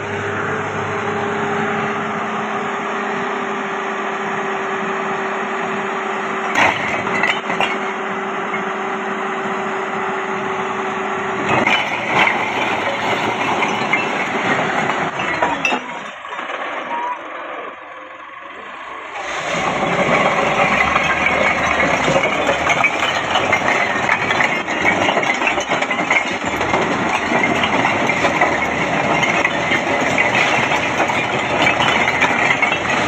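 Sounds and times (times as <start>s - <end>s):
tractor engine running: 0.0s - 33.0s
bricks clattering and cracking: 6.5s - 8.7s, 11.4s - 17.8s, 19.0s - 33.0s.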